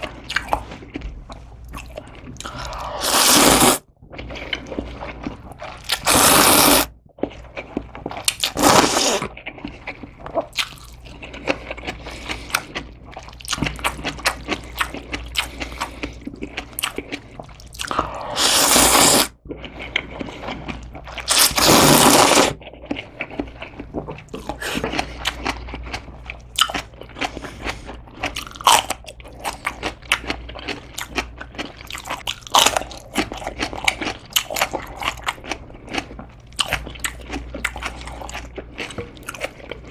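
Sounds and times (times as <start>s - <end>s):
wet chewing and crunching: 0.0s - 39.9s
slurping noodles: 2.4s - 5.0s, 5.9s - 6.9s, 8.4s - 10.0s, 17.8s - 22.6s.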